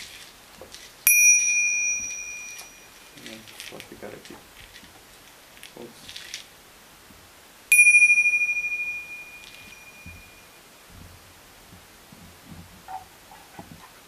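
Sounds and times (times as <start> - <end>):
hand bell ringing: 1.1 - 3.2, 7.7 - 10.6.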